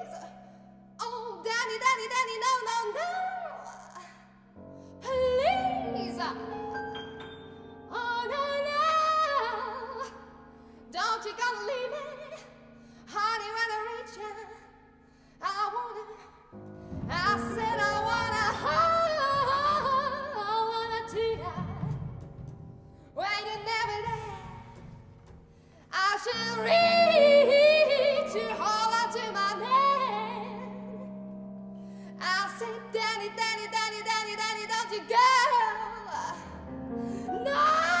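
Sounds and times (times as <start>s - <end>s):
operatic soprano singing: 5.0s - 7.2s, 7.9s - 10.3s, 17.1s - 22.0s, 25.9s - 31.1s, 32.2s - 36.6s, 37.2s - 38.0s
soprano voice singing vibrato: 26.0s - 31.1s.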